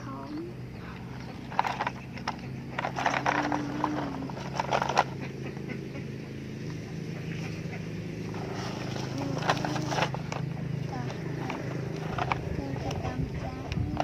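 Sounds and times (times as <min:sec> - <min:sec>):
steady low hum: 0:00.0 - 0:14.0
plastic toy trucks clattering: 0:01.2 - 0:05.2, 0:08.4 - 0:14.0.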